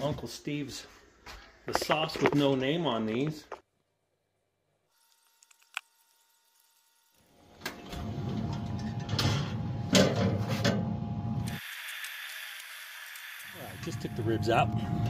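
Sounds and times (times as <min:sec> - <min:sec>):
metal grill rack knocks and scrapes: 0:08.4 - 0:10.9.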